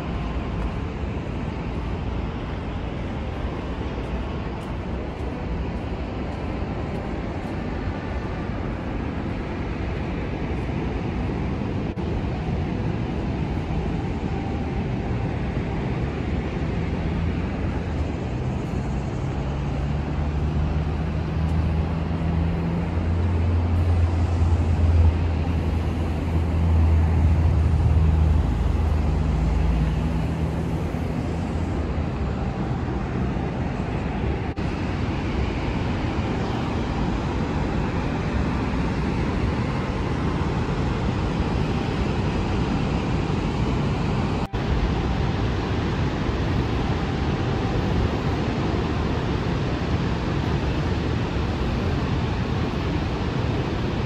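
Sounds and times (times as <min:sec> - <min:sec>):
waterfall roaring: 0:00.0 - 0:54.0
vehicle engine humming: 0:11.9 - 0:54.0.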